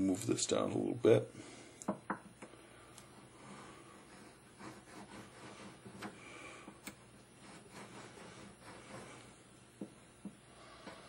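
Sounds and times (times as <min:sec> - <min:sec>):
faint rubbing on metal: 0:02.7 - 0:09.6, 0:10.5 - 0:11.0.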